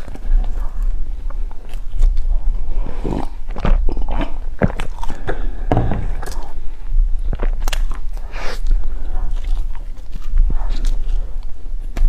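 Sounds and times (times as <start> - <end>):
chewing with wet mouth clicks: 7.2 - 12.0.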